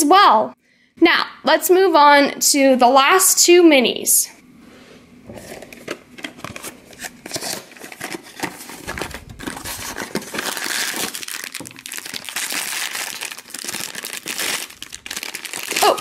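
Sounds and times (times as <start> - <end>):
foil bag crinkling: 6.5 - 16.0.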